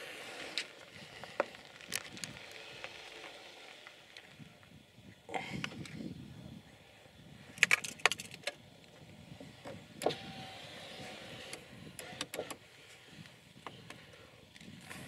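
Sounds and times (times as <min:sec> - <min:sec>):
faint mechanical whine: 0:00.0 - 0:15.0.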